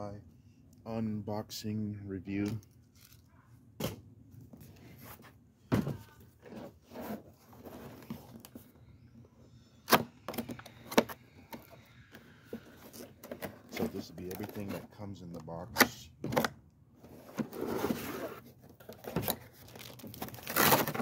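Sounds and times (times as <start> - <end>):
cardboard rustling and scraping: 4.5 - 8.7, 12.5 - 15.1, 17.0 - 21.0.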